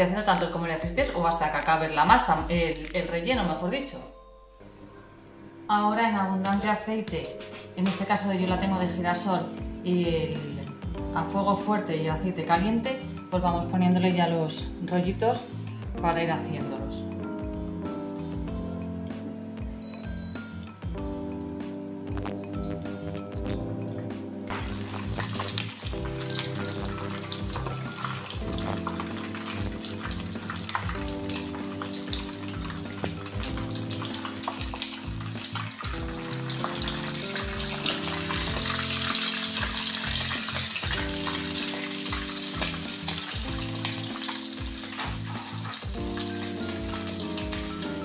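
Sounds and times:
background music: 0:00.0 - 0:48.0
crackling sizzle of frying: 0:16.8 - 0:48.0.

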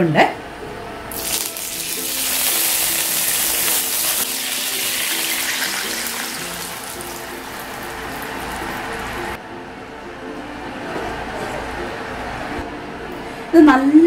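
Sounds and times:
liquid poured into hot pan hissing: 0:01.1 - 0:09.4.

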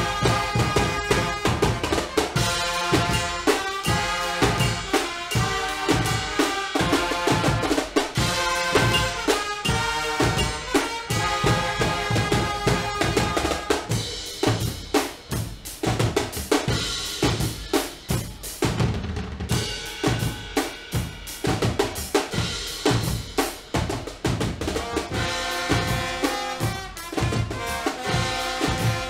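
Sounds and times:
brass sustained chords: 0:00.0 - 0:14.7, 0:24.8 - 0:29.0
drums playing fast groove: 0:00.0 - 0:29.0.

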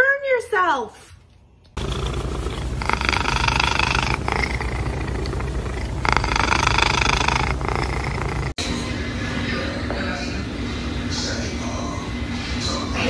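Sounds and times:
cat purring: 0:01.8 - 0:08.6.

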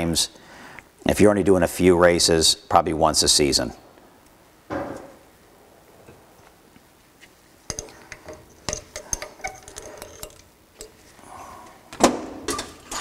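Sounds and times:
metal parts clicking and tapping: 0:07.7 - 0:11.0.

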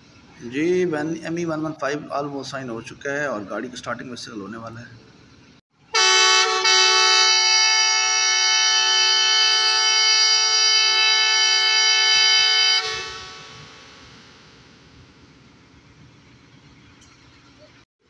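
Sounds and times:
locomotive air horn blast: 0:05.9 - 0:14.7.

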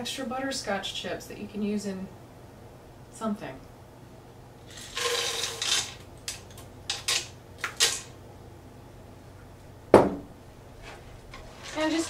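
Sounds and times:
chips pouring into a pot: 0:04.7 - 0:06.0.

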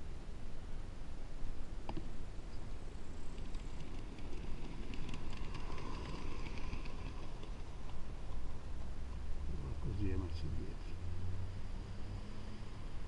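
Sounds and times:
small steam locomotive running: 0:03.2 - 0:08.7.

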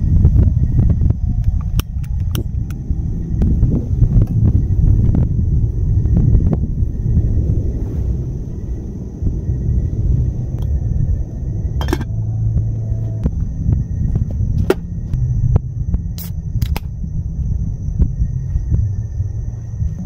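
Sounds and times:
low steady rumble: 0:00.0 - 0:20.0
metal lid clinking on pot: 0:11.8 - 0:12.1.

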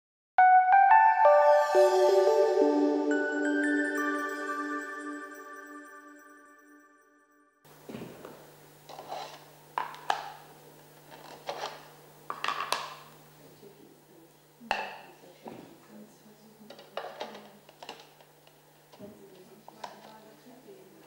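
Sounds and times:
plastic parts clicking and clattering: 0:16.7 - 0:18.3.

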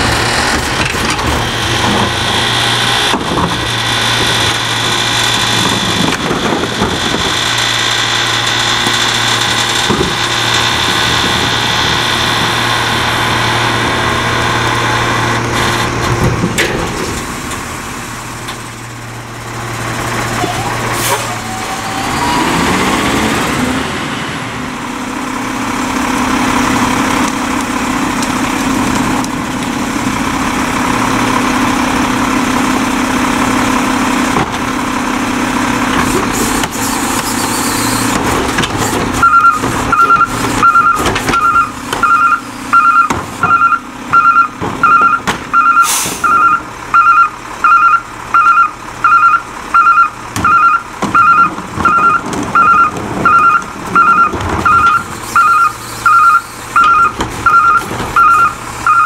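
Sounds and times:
diesel engine droning: 0:00.0 - 0:59.0
reverse alarm beeping: 0:39.2 - 0:59.0.

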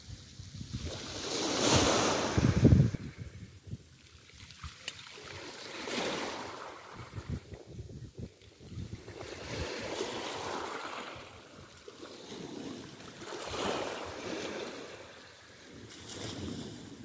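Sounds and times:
sea waves washing ashore: 0:00.0 - 0:03.4, 0:04.0 - 0:07.5, 0:08.5 - 0:17.0.

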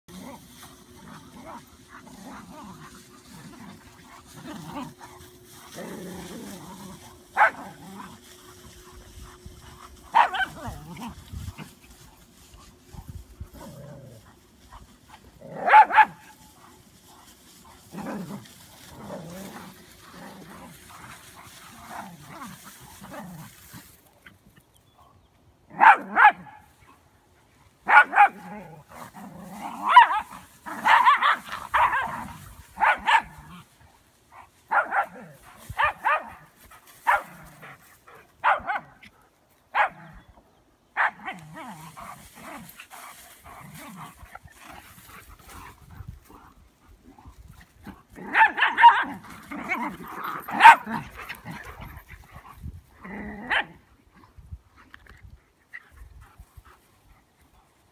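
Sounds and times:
dog barking: 0:07.4 - 0:07.6, 0:10.1 - 0:10.6, 0:15.6 - 0:16.3, 0:25.8 - 0:26.7, 0:27.9 - 0:28.4, 0:29.9 - 0:32.1, 0:32.8 - 0:33.3, 0:38.4 - 0:38.9, 0:41.0 - 0:41.2, 0:48.3 - 0:49.1.

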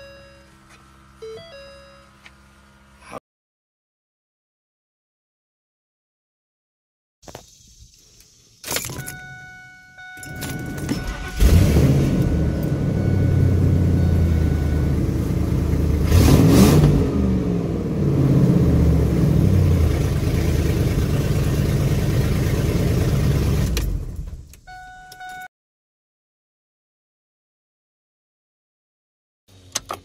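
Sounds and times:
truck engine idling and revving: 0:09.0 - 0:25.3.

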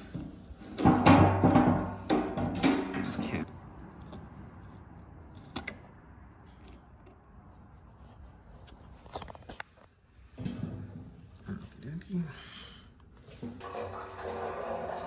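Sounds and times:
metal can clanking and scraping: 0:00.0 - 0:03.5, 0:13.3 - 0:15.0.

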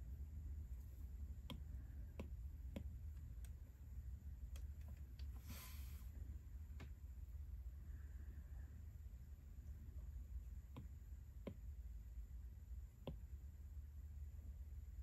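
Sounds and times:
stylus tapping on screen: 0:01.3 - 0:03.6, 0:10.7 - 0:11.7, 0:13.0 - 0:13.3
short hiss: 0:05.4 - 0:06.1.

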